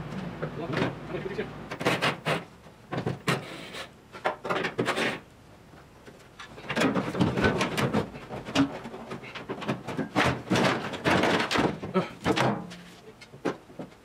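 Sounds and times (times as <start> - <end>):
parts rattling and clattering: 1.7 - 5.3, 5.9 - 14.0
parts bumping metal body: 6.4 - 14.0.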